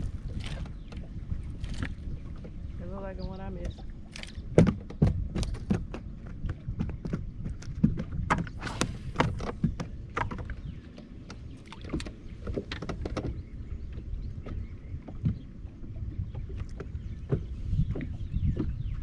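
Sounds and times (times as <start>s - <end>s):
waves slapping boat hull: 0.0s - 19.0s
low rumble: 8.5s - 10.8s.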